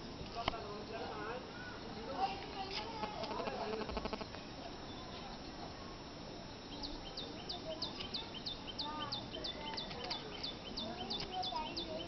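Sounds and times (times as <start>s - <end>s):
outdoor background noise: 0.0s - 12.0s
small bird chirping: 2.6s - 5.6s, 6.6s - 12.0s.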